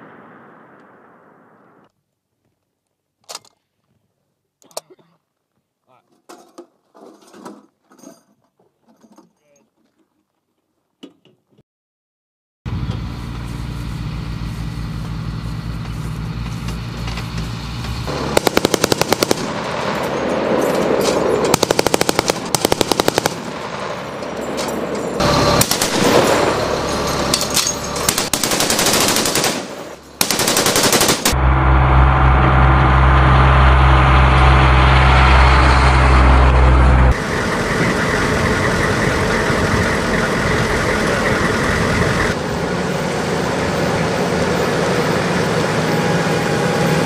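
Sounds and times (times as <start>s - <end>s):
truck engine running: 12.7s - 47.0s
machine gun firing bursts: 18.1s - 19.9s, 21.5s - 23.6s, 25.6s - 26.5s, 28.1s - 31.4s.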